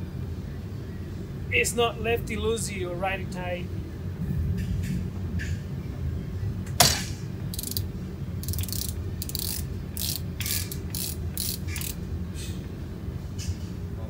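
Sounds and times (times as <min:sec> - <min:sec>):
ratchet wrench clicking: 0:07.5 - 0:12.0.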